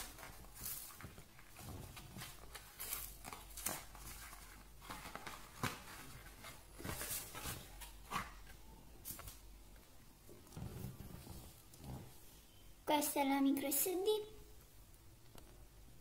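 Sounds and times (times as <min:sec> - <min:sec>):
cardboard rustling and tearing: 0:00.0 - 0:09.4.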